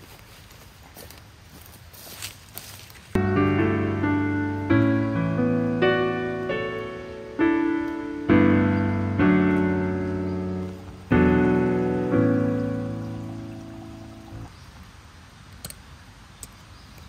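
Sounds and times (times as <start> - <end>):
slow piano chords: 3.2 - 14.5.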